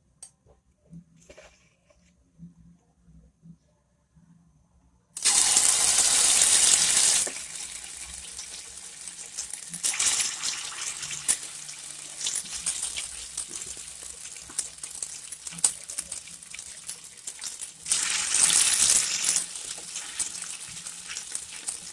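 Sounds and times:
frying crackle and pops: 5.2 - 21.9
oil sizzling in a wok: 5.2 - 21.9.

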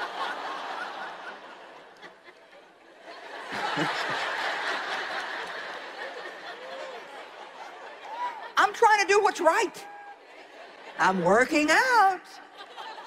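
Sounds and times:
audience laughing: 0.0 - 8.8, 9.4 - 13.0.

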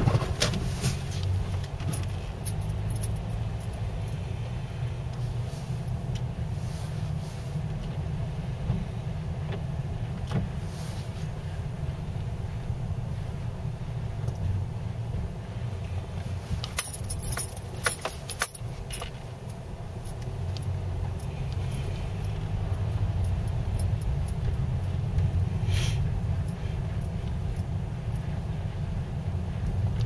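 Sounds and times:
car cabin rumble: 0.0 - 30.0
sharp clicks and jingling rattles: 1.6 - 4.3, 16.6 - 25.4
brief hiss: 25.6 - 26.1.

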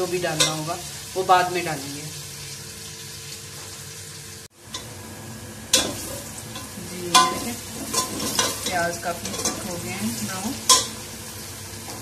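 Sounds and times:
onions sizzling in oil: 0.0 - 12.0
ladle clanking against pot: 10.7 - 11.0.

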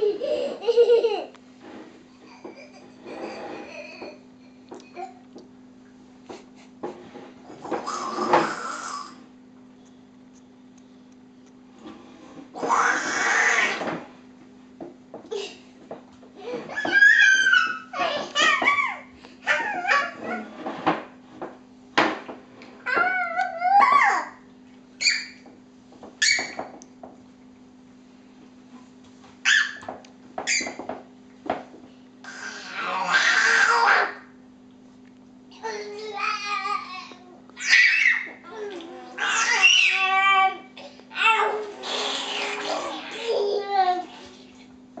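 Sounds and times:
child growling: 7.8 - 9.2, 12.6 - 13.9, 32.2 - 34.2, 35.6 - 37.8, 38.5 - 44.1
toddler squealing: 16.7 - 20.4, 32.3 - 34.2, 37.6 - 38.4, 39.1 - 40.6.

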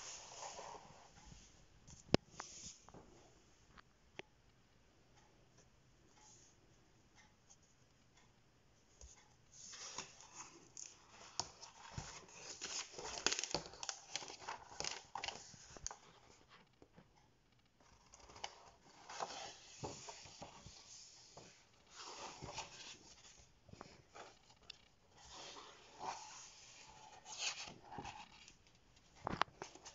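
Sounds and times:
paper pages rustling and turning: 0.0 - 3.0, 9.6 - 17.0, 17.8 - 29.9.

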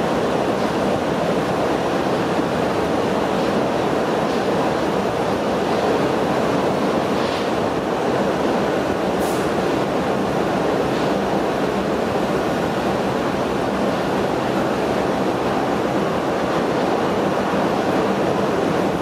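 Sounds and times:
wheels rumbling on rails: 0.0 - 19.0.

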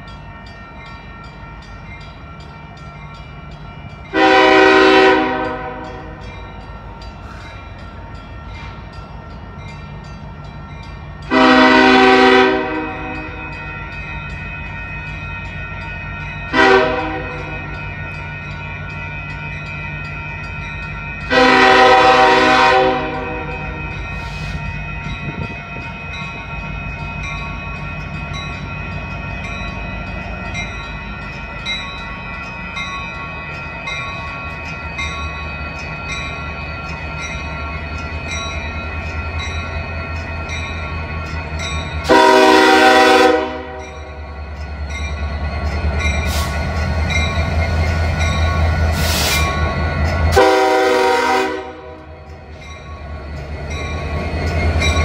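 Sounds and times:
diesel locomotive rumbling: 0.0 - 55.0
loud train horn blasts: 4.1 - 6.2, 11.3 - 13.4, 16.5 - 17.8, 21.3 - 23.8, 42.0 - 44.0, 50.3 - 52.2.

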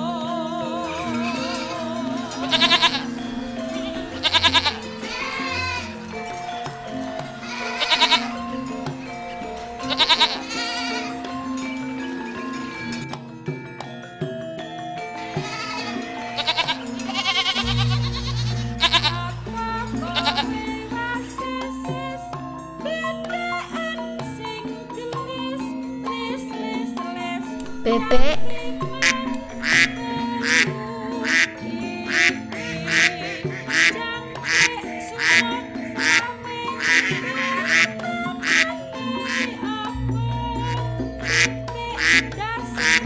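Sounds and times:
background music: 0.0 - 43.0
ducks quacking: 0.8 - 13.0, 15.2 - 21.4, 27.6 - 39.8, 40.4 - 43.0
goats bleating: 0.8 - 13.0, 15.2 - 21.4, 27.6 - 39.8, 40.6 - 43.0.

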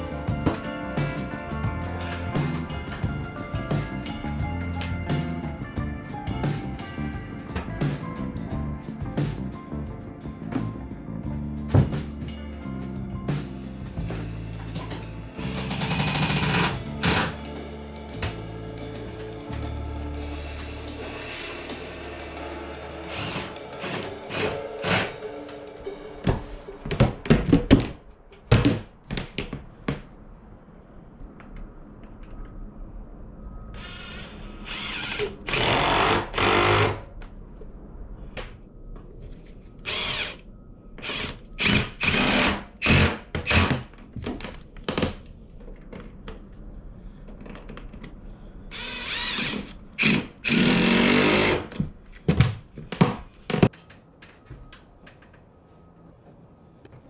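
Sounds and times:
cordless drill running: 48.7 - 51.6.

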